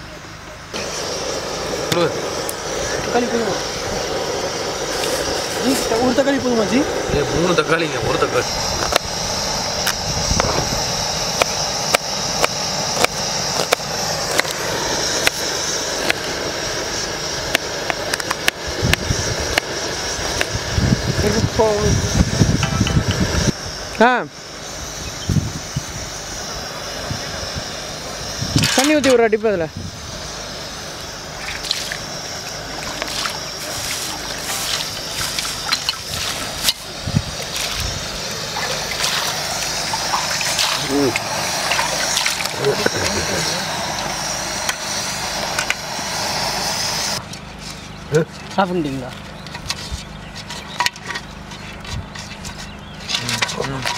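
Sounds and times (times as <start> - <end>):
steady hiss: 0.0 - 47.2
water splashing: 38.5 - 42.6.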